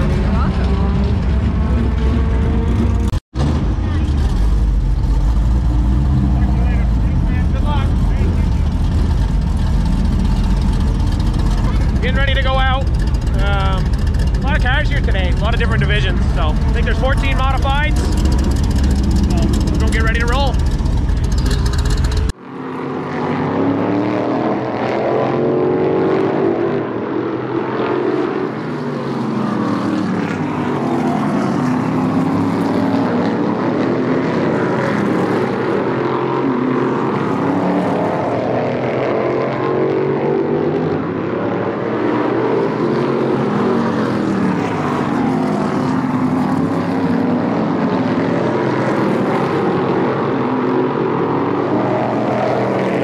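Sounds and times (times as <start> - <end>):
race car engine running hard: 0.0 - 53.0.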